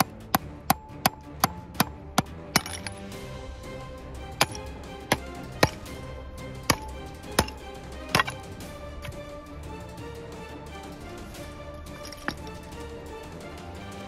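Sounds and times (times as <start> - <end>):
background music: 0.0 - 14.0
blade chopping into container: 4.2 - 6.0, 6.6 - 8.5.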